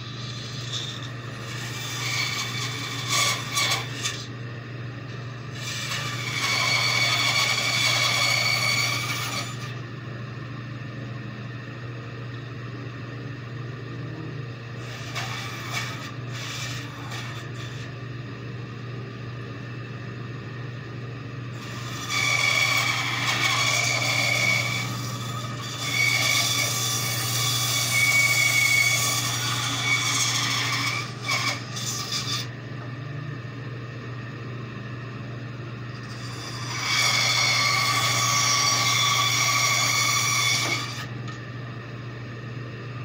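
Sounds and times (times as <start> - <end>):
bandsaw blade cutting wood: 0.0 - 4.3, 5.5 - 9.7, 14.8 - 17.9, 21.6 - 32.5, 36.0 - 41.1
bandsaw humming: 0.0 - 4.4, 5.2 - 9.8, 14.0 - 18.0, 21.5 - 32.6, 35.8 - 41.4.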